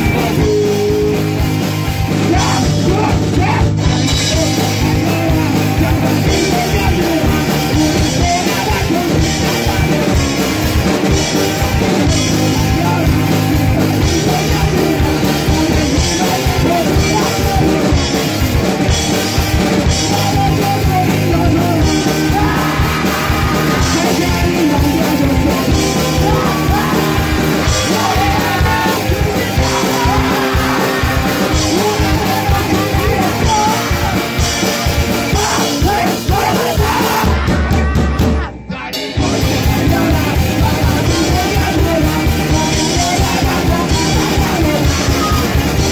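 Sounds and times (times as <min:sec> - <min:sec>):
punk rock band playing: 0:00.0 - 0:45.9
yelled singing: 0:00.0 - 0:45.9.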